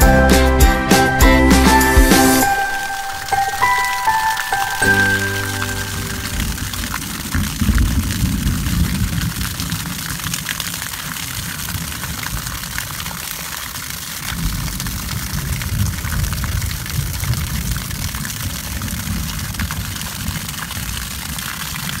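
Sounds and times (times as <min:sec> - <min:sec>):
water splashing onto ground: 0:02.4 - 0:22.0.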